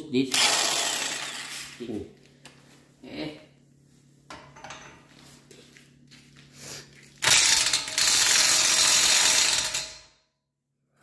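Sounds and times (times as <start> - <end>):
impact wrench hammering: 7.2 - 10.1.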